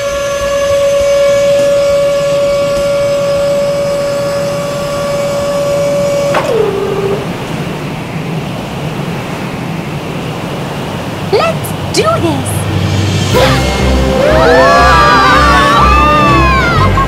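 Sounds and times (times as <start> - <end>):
lift motor whine: 0.0 - 8.1.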